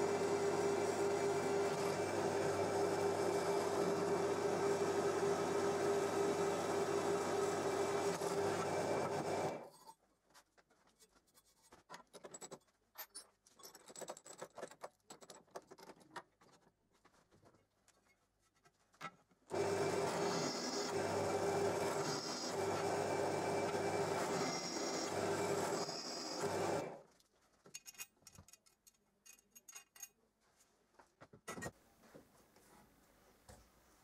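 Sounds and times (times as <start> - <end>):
drill press humming: 0.0 - 9.6, 19.5 - 27.0.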